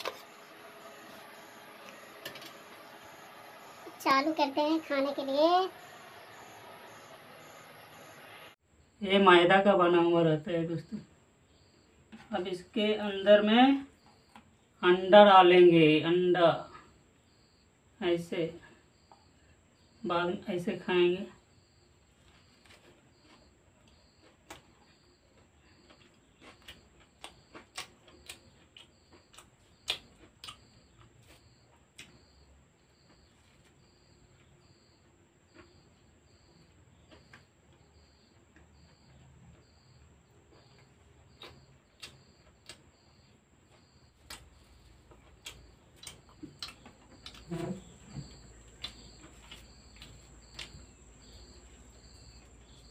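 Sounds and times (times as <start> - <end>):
cricket chirping: 0.0 - 52.9
chewing and tearing bread: 22.1 - 32.4, 40.5 - 51.5.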